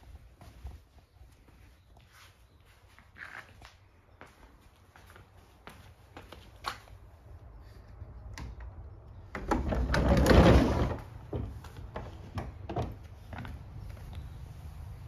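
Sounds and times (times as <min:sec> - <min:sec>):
sliding door scraping open: 0:09.5 - 0:11.6.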